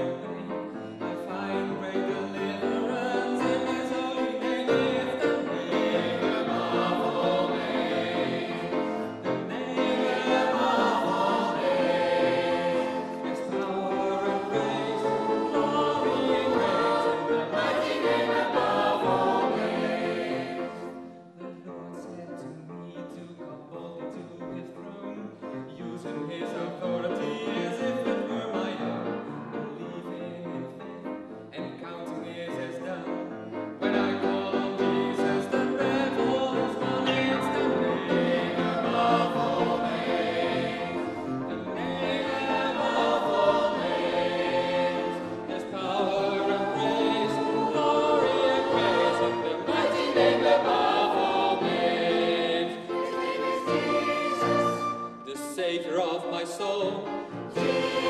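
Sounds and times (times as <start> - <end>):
choir singing gospel song: 0.0 - 21.4, 33.8 - 58.0
man singing into microphone: 1.2 - 5.7.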